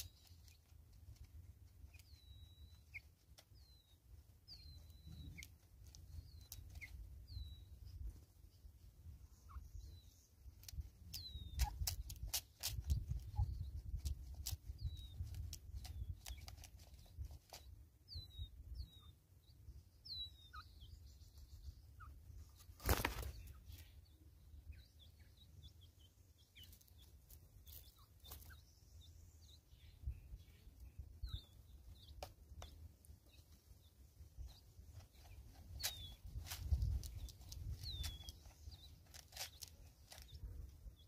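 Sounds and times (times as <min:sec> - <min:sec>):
birds pecking plastic feeder: 0:00.0 - 0:07.2, 0:10.5 - 0:17.9, 0:31.5 - 0:41.0
small birds chirping: 0:00.0 - 0:41.0.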